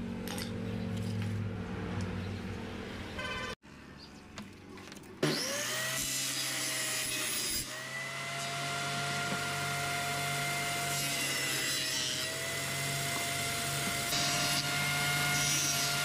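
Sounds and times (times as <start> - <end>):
table saw whine: 5.2 - 16.0.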